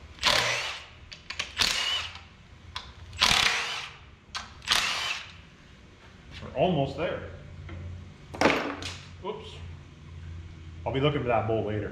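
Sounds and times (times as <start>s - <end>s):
electric ratchet whirring: 0.2s - 2.3s, 3.1s - 5.4s.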